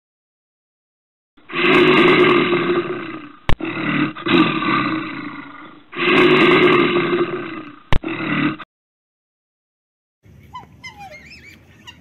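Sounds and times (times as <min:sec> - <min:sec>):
bear roaring: 0:01.4 - 0:08.7.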